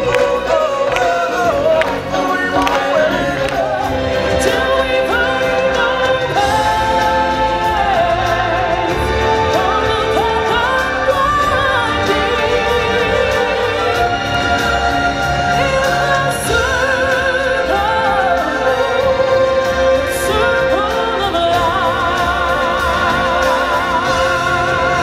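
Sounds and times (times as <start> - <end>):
amplified backing music: 0.0 - 25.0
person singing into microphone: 0.0 - 25.0.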